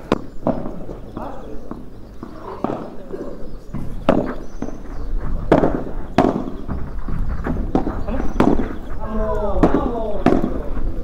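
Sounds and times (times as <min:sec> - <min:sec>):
rackets striking ball: 0:00.0 - 0:11.0
ball bouncing: 0:03.7 - 0:10.8.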